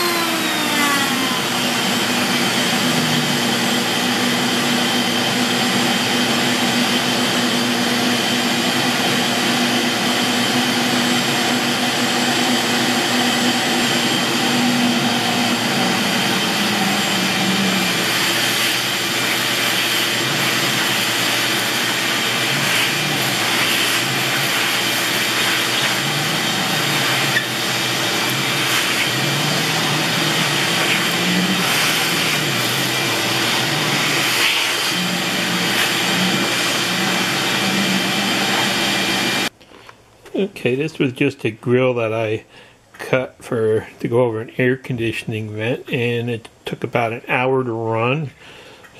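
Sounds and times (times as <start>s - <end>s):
shop vacuum running: 0.0s - 39.6s
wood chips rattling up hose: 15.7s - 38.7s.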